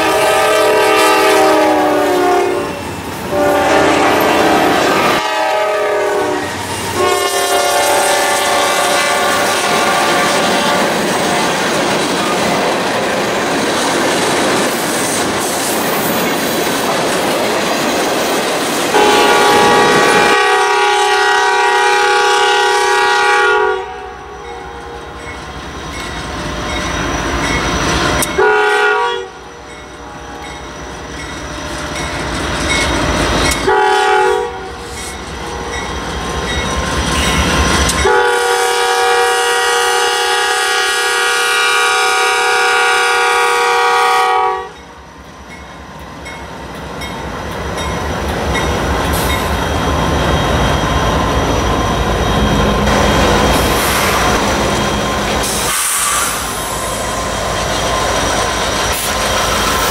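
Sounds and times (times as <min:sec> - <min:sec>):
locomotive horn blasts: 0:00.0 - 0:11.0, 0:18.9 - 0:25.2, 0:28.2 - 0:29.6, 0:33.6 - 0:34.8, 0:38.0 - 0:44.8
diesel locomotive rumbling: 0:00.0 - 0:59.9
train wheels clicking on rail joints: 0:08.6 - 0:20.2, 0:24.4 - 0:28.5, 0:29.6 - 0:33.8, 0:34.6 - 0:38.2, 0:44.8 - 0:59.9.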